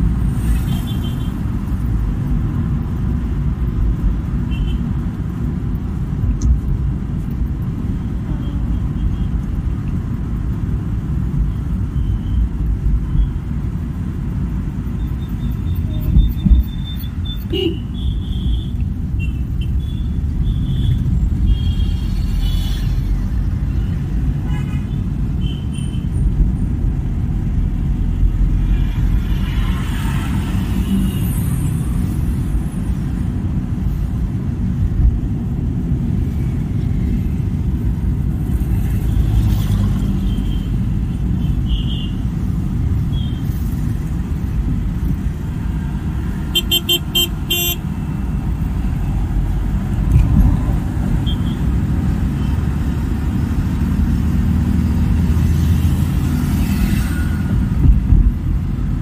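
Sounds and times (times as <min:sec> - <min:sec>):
heavy traffic rumble: 0:00.0 - 0:59.0
car horn toots: 0:46.5 - 0:47.8.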